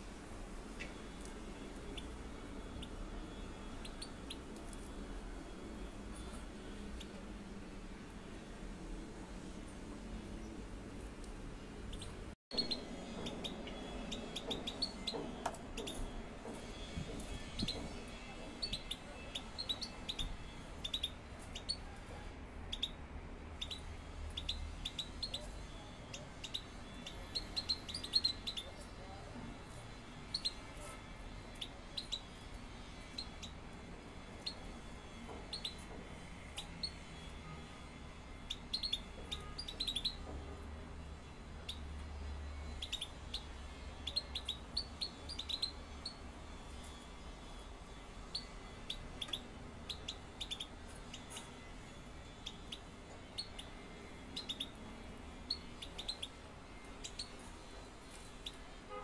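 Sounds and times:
goldfinches chirping: 0:00.7 - 0:04.8, 0:11.8 - 0:16.1, 0:18.5 - 0:21.8, 0:23.6 - 0:28.8, 0:38.4 - 0:40.3, 0:41.6 - 0:47.3, 0:48.0 - 0:58.7.

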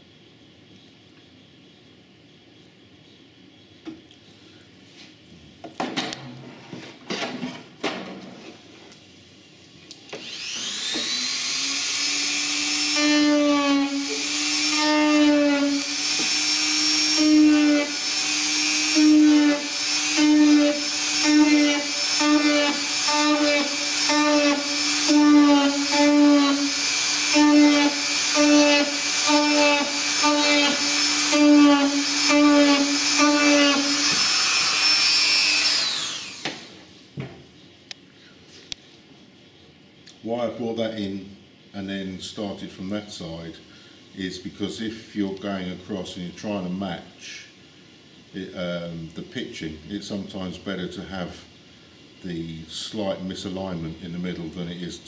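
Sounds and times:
electric rotary tool whining: 0:10.1 - 0:36.8.

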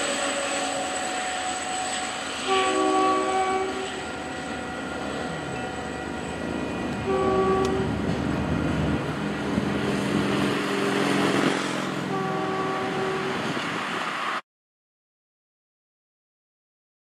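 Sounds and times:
train horn blast: 0:00.0 - 0:08.7, 0:12.0 - 0:13.6
diesel train rumble: 0:00.0 - 0:14.4.

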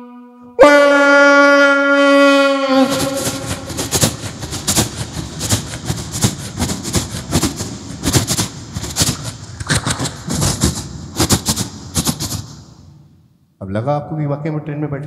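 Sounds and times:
man imitating a train vocally: 0:00.6 - 0:04.8.

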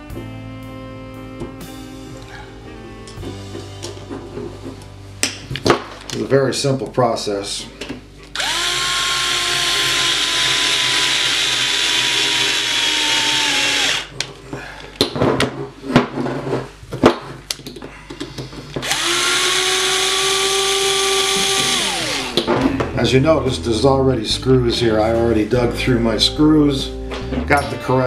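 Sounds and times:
cordless drill motor whine: 0:08.4 - 0:14.1, 0:18.8 - 0:22.5
clicks and knocks of parts handled: 0:16.9 - 0:18.9.

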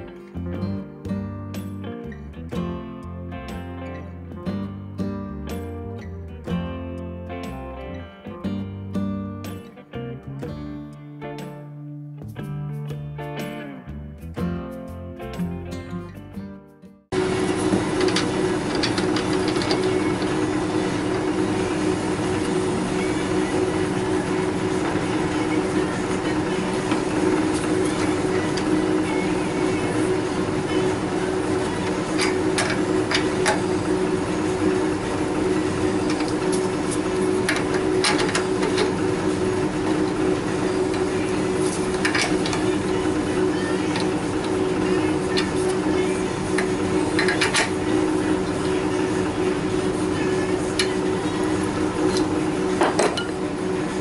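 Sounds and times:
workshop machinery hum: 0:00.0 - 0:01.0, 0:17.1 - 0:54.0.

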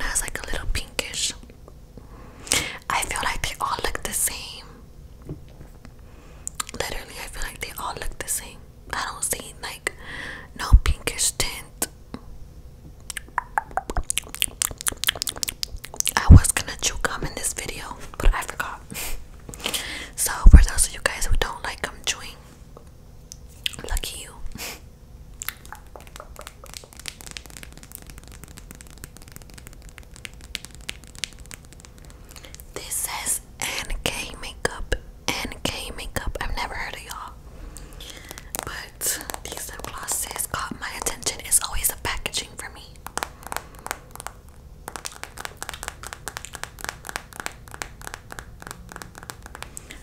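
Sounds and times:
sticky lip clicks: 0:13.0 - 0:16.3, 0:25.4 - 0:32.9, 0:43.0 - 0:50.0.

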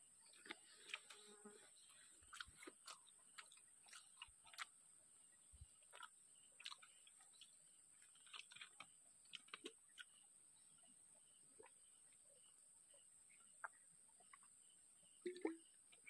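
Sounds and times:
person chewing food: 0:00.2 - 0:04.8, 0:05.6 - 0:10.2.

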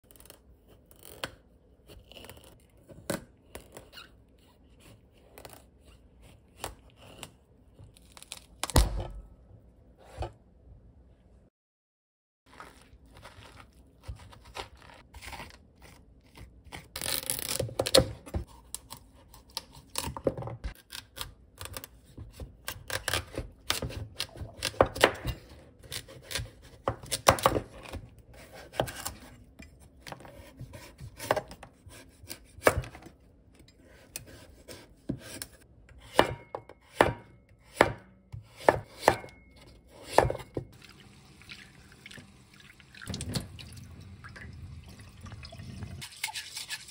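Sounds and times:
knife cutting pumpkin: 0:00.0 - 0:09.2, 0:12.5 - 0:40.7.

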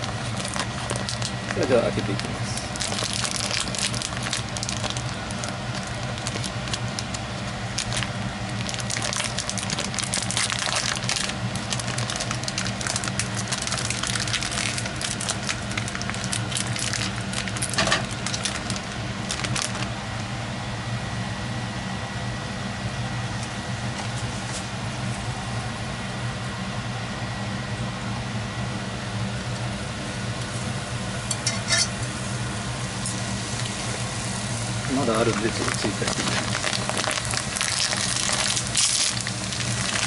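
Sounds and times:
plastic packaging crinkling: 0:00.0 - 0:19.9, 0:33.2 - 0:40.0
steady low hum: 0:00.0 - 0:40.0.

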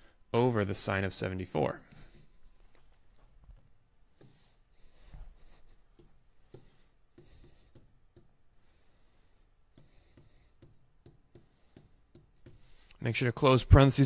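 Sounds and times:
faint clicks and taps: 0:02.5 - 0:04.5, 0:05.1 - 0:08.4, 0:09.7 - 0:13.0.

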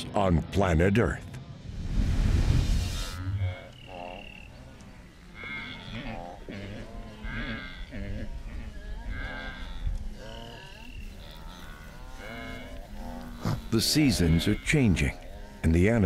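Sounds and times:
low rumble: 0:01.1 - 0:04.4
wildebeest herd calling: 0:03.2 - 0:16.0.

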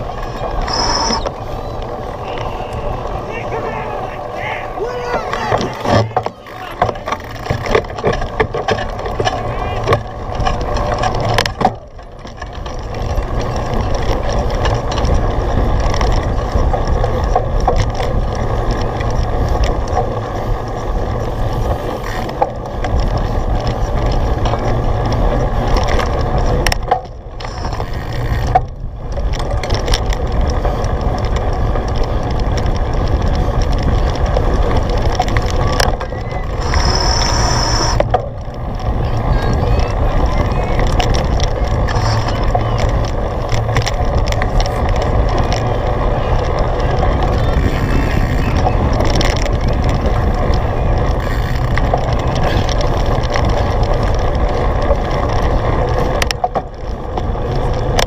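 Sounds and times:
bike frame and chain rattle: 0:00.0 - 0:58.0
wind and riding noise: 0:00.0 - 0:58.0
scattered clicks: 0:05.1 - 0:58.0.

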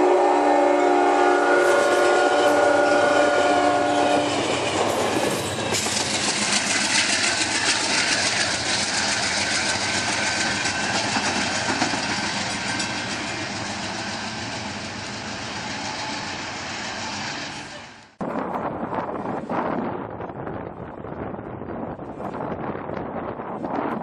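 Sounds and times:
train rolling rumble: 0:00.0 - 0:24.0
train wheels clicking over rails: 0:04.2 - 0:18.2.

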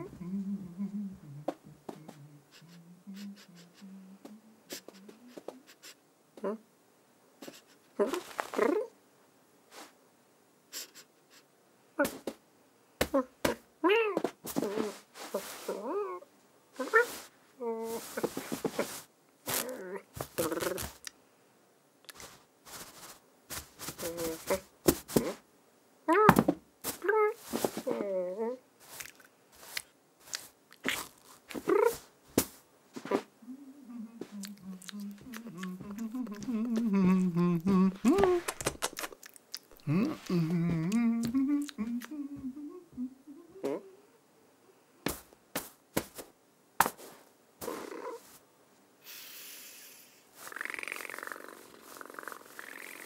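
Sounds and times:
man humming: 0:00.0 - 0:06.6, 0:24.0 - 0:25.4, 0:33.0 - 0:38.7, 0:39.7 - 0:44.2
person making cat sounds: 0:00.0 - 0:06.7, 0:07.4 - 0:09.0, 0:12.0 - 0:12.4, 0:13.0 - 0:21.1, 0:22.1 - 0:25.4, 0:26.1 - 0:44.3, 0:47.6 - 0:48.4, 0:49.0 - 0:53.0.

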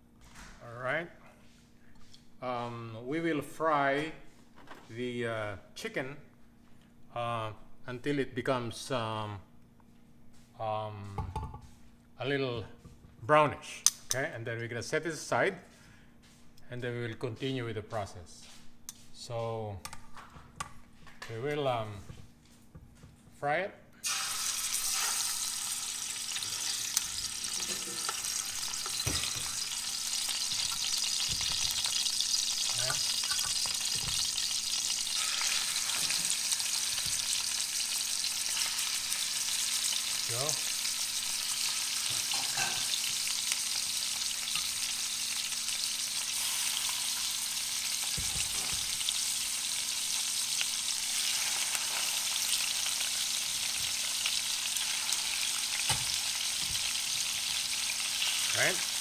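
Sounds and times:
chicken sizzling in oil: 0:24.0 - 0:59.0.

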